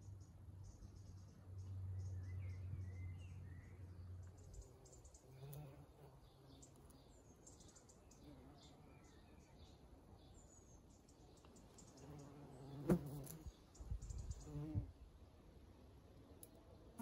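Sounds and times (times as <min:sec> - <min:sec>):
bumblebee buzzing: 0:12.2 - 0:13.5.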